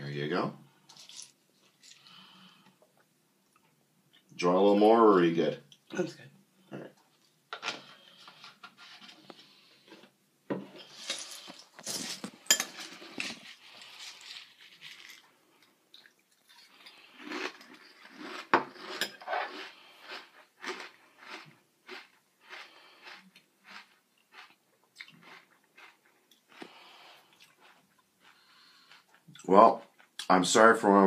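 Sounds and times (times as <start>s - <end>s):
crunchy chewing: 11.4s - 30.2s.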